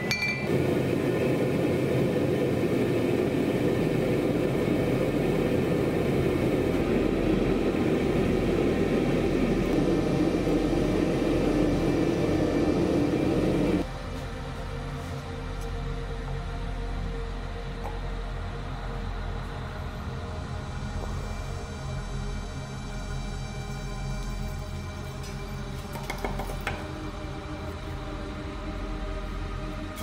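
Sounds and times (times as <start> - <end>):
forge burning with rushing noise: 0.0 - 13.9.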